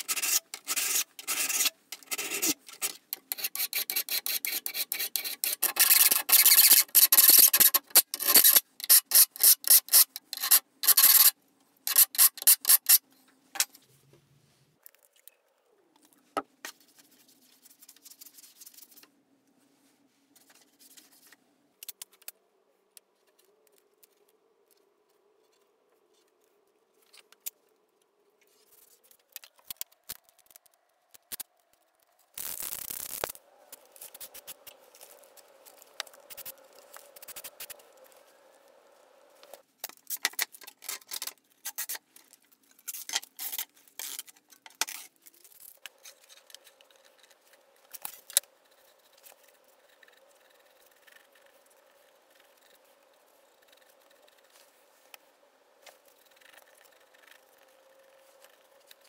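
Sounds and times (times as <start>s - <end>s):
sandpaper rubbing on metal blade: 0.0s - 11.3s, 11.9s - 13.0s
masking tape ripped off roll: 32.4s - 38.1s.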